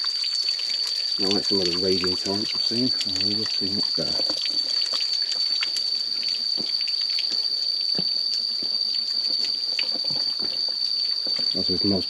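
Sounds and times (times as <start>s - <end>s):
small waterfall splashing: 0.0s - 7.3s
water dripping: 0.0s - 12.0s.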